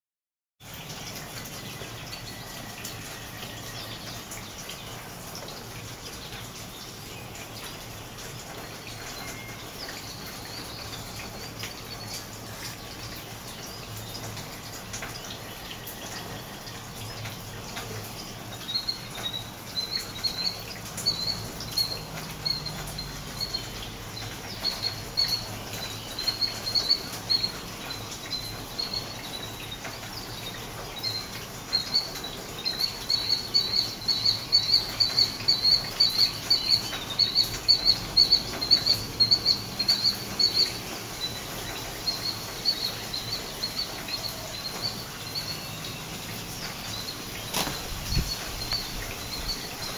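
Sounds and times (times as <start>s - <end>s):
rain pattering: 0.6s - 49.9s
killdeer calling: 18.6s - 45.8s, 46.8s - 49.9s.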